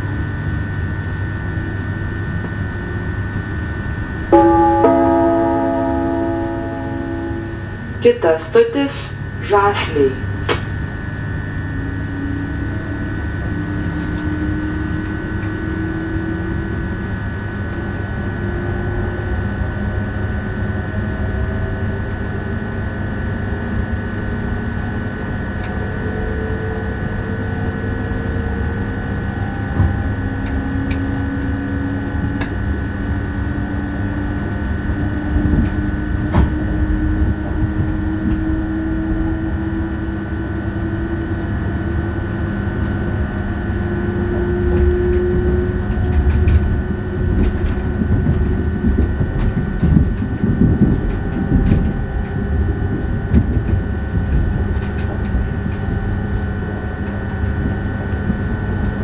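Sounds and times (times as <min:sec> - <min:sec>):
traction motor whine: 0:00.0 - 0:08.0, 0:09.0 - 0:59.0
high hum: 0:00.0 - 0:59.0
train rumbling on rails: 0:00.0 - 0:59.0.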